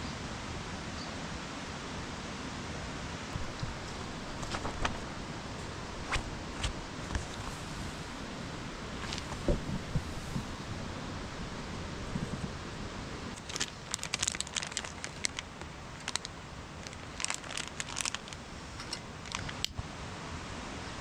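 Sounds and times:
steady background hiss: 0.0 - 21.0
crinkling and crackling: 3.3 - 19.8.

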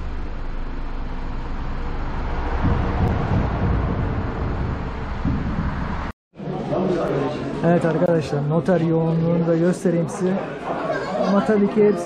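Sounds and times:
car engine hum and rumble: 0.0 - 6.2.

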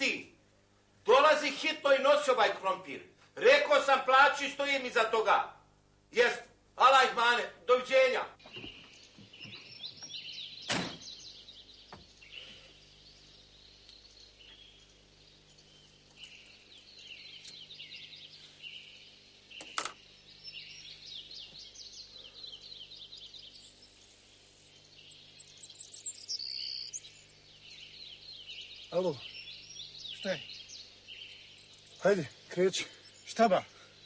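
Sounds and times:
faint low hum: 0.0 - 34.0
small birds chirping: 6.2 - 34.0
sharp clicks: 19.6 - 20.0.

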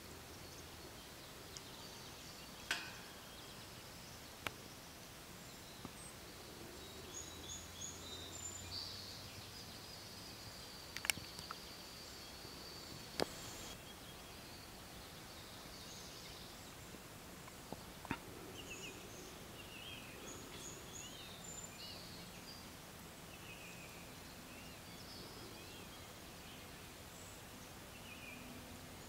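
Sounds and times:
distant small birds chirping: 0.0 - 29.0
sharp clicks: 10.9 - 11.6.

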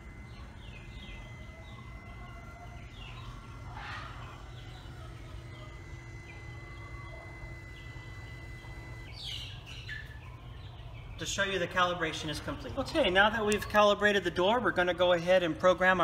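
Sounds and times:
motor whining: 0.0 - 10.2
birds chirping: 0.0 - 16.0.

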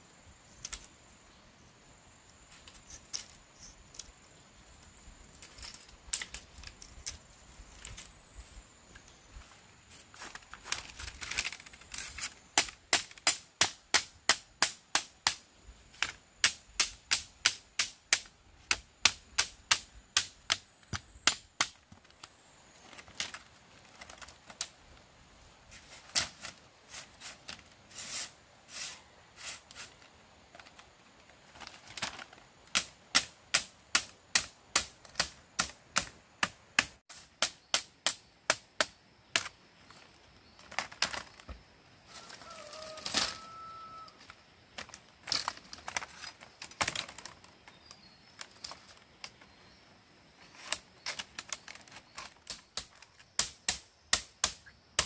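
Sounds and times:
machete striking bamboo strips: 11.7 - 22.2, 25.7 - 26.6, 32.6 - 39.6, 50.6 - 55.0.

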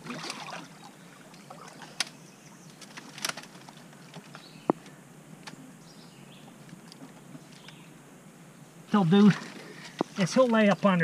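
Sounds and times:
faint chirping: 7.3 - 8.8.

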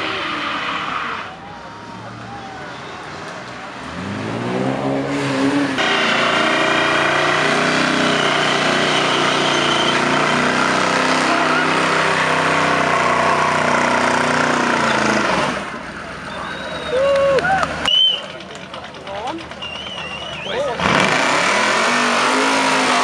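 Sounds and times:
van engine revving: 3.8 - 16.4, 19.4 - 23.0
tyres spinning on asphalt: 5.5 - 23.0.

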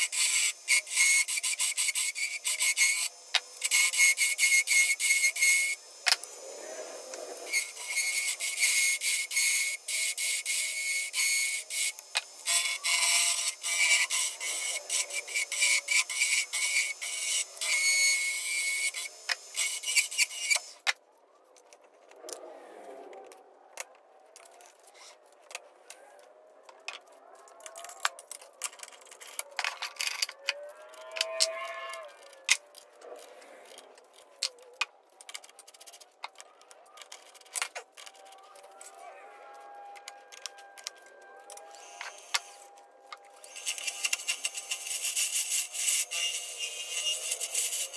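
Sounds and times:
lathe tool scraping wood: 0.0 - 20.8
scattered clicks and handling sounds: 0.0 - 22.4, 23.0 - 46.4.

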